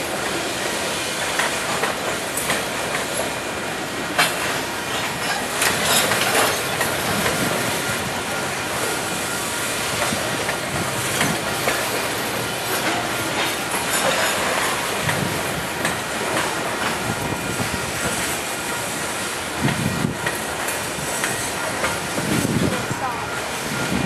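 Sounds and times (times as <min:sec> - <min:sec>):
train wheels rumbling on rails: 0:00.0 - 0:24.0
clanks over rail joints: 0:01.2 - 0:03.4, 0:04.1 - 0:08.0, 0:09.9 - 0:22.6.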